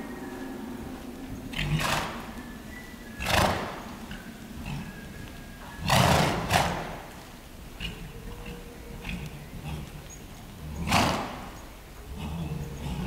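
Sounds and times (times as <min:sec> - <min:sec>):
horse snorting: 0:01.5 - 0:02.4, 0:03.2 - 0:05.1, 0:05.8 - 0:07.1, 0:07.8 - 0:13.0.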